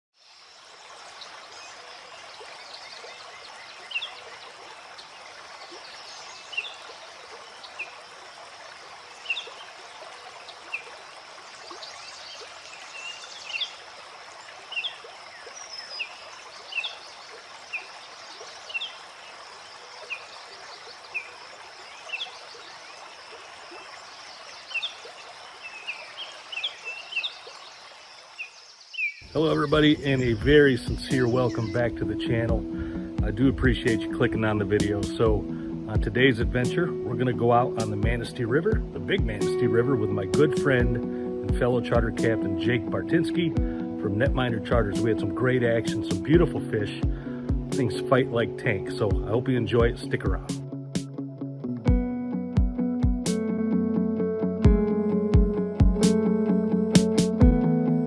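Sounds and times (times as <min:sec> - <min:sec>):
river water rushing: 0:00.4 - 0:33.3
bird chirps: 0:23.7 - 0:32.0.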